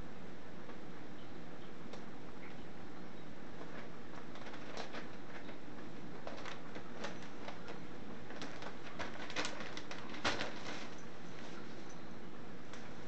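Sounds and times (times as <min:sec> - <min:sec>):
paper rustling and crackling: 0:03.5 - 0:12.0.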